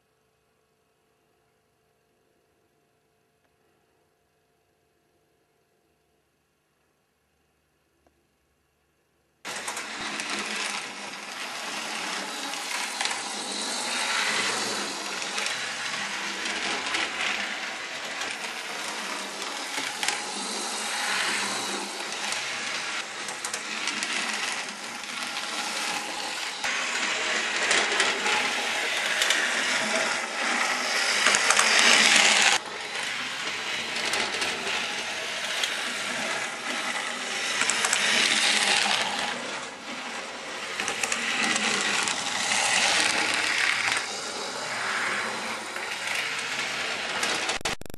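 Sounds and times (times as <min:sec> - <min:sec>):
model tram motor whirring: 0:09.5 - 0:47.6.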